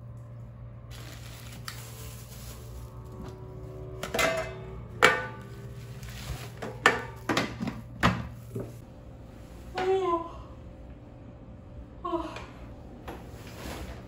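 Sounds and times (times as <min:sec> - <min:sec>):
metal pot and lid clinking: 0:04.0 - 0:05.4.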